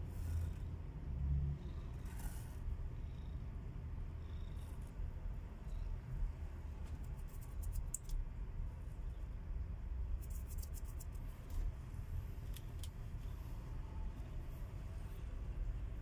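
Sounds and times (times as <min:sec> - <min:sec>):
cat purring: 0:00.0 - 0:06.0.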